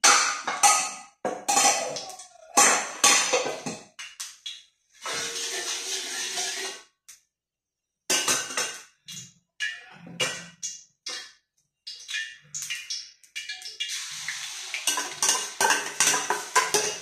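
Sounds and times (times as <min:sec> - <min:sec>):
metal bowls and utensils clattering: 0:00.0 - 0:03.9, 0:05.0 - 0:06.8, 0:08.1 - 0:09.0, 0:13.5 - 0:17.0
oil hissing in a wok: 0:05.0 - 0:06.8, 0:13.9 - 0:17.0.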